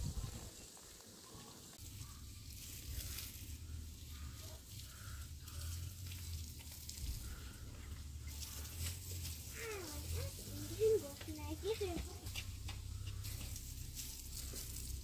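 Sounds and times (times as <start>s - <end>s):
hose water spraying on concrete: 0.0s - 15.0s
low steady hum: 1.8s - 11.2s.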